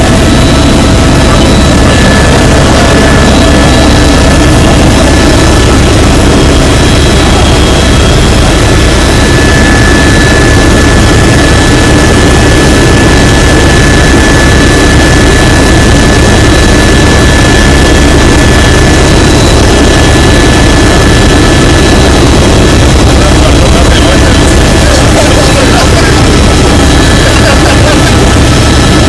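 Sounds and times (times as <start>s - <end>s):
helicopter engine and rotor din: 0.0s - 29.0s
high whine: 0.0s - 29.0s.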